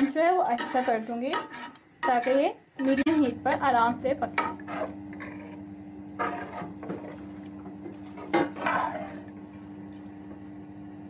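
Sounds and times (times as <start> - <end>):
metal spoon stirring in pot: 0.0 - 5.6, 6.2 - 9.4
steady low hum: 2.6 - 11.0.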